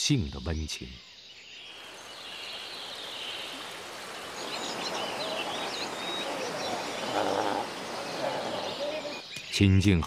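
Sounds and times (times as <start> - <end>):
bird chirping: 0.0 - 10.0
stream rushing over rocks: 1.7 - 9.2.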